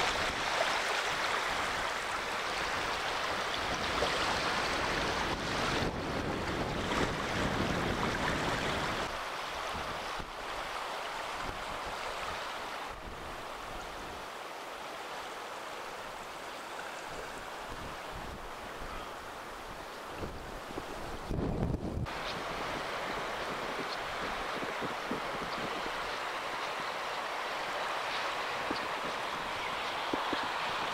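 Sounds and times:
wind rumble on microphone: 0:00.0 - 0:10.6, 0:17.1 - 0:26.6, 0:28.4 - 0:30.9
small waves washing: 0:00.0 - 0:21.4, 0:22.0 - 0:30.9.

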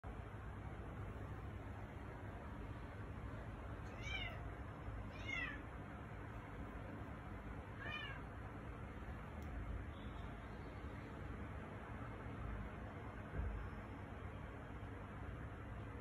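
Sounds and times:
cat meowing: 0:03.8 - 0:04.4, 0:05.1 - 0:05.6, 0:07.8 - 0:08.3.

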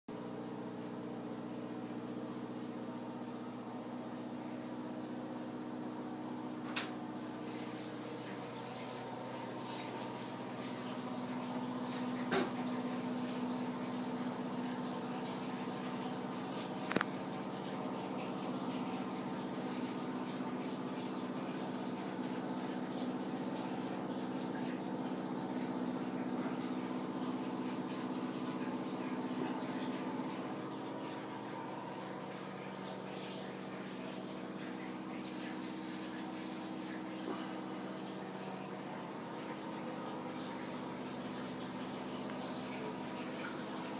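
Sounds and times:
gas water heater humming: 0:00.1 - 0:43.9.

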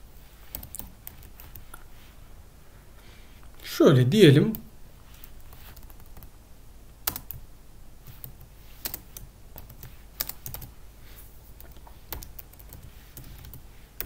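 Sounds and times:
computer keyboard keystrokes: 0:00.5 - 0:01.6, 0:07.0 - 0:07.4, 0:08.1 - 0:10.7, 0:11.6 - 0:13.6.

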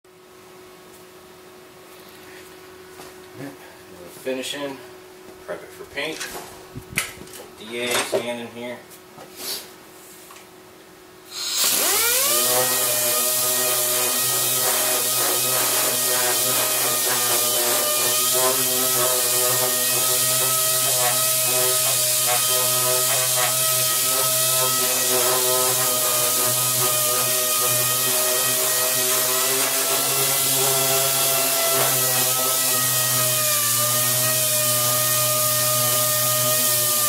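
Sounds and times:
pneumatic sander whining: 0:11.3 - 0:37.0.

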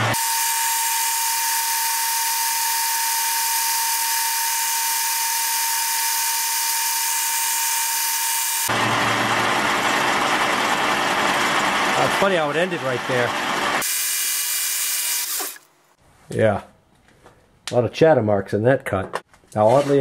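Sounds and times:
lathe running: 0:00.0 - 0:13.9.

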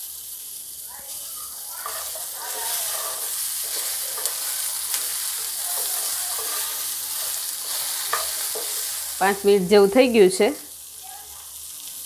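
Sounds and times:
berries sizzling in hot oil: 0:00.0 - 0:12.0
wooden spatula scraping pan: 0:01.8 - 0:09.2.

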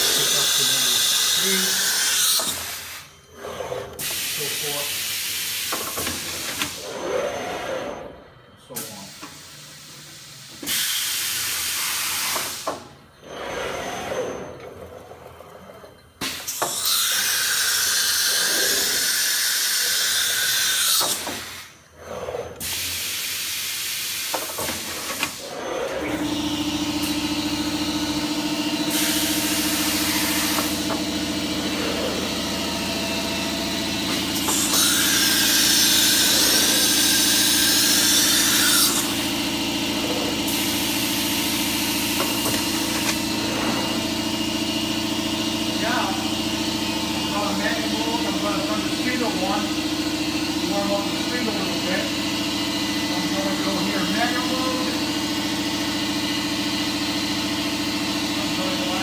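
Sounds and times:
steady machine hum: 0:21.7 - 0:59.0.

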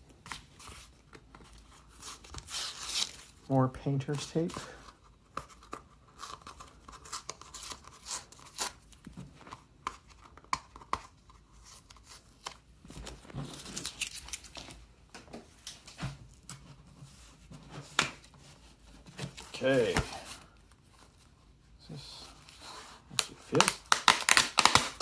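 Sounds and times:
tape tearing and crackling: 0:01.9 - 0:03.4, 0:11.6 - 0:14.8, 0:23.1 - 0:25.0.

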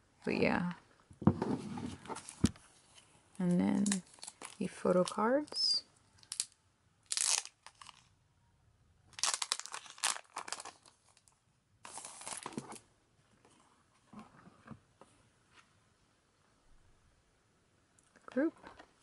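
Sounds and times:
plastic sleeve crinkling: 0:03.4 - 0:08.2, 0:09.1 - 0:12.8.

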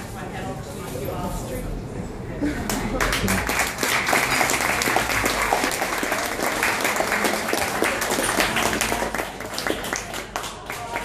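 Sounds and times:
audience applauding: 0:02.7 - 0:11.0.

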